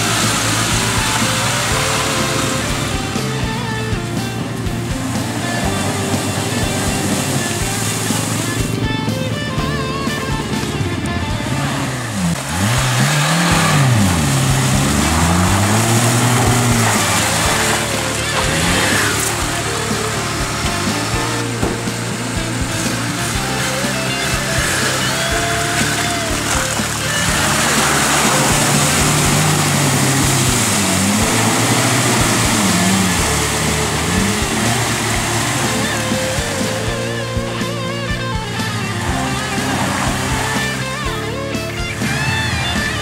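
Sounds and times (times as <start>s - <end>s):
off-road vehicle engine revving: 0.0s - 43.0s
water splashing: 0.0s - 43.0s.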